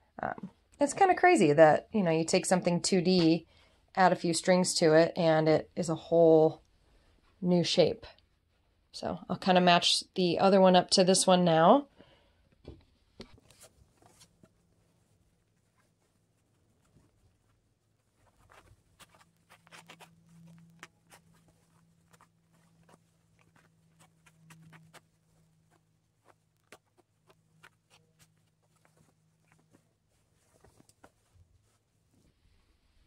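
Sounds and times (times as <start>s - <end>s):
low steady hum: 0.0s - 33.0s
fabric rustling and ticking: 12.4s - 32.9s.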